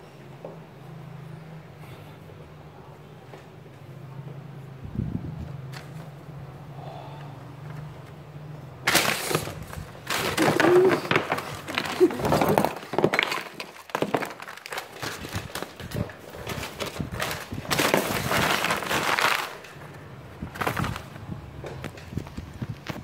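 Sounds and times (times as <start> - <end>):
paper crumpling: 8.8 - 21.2.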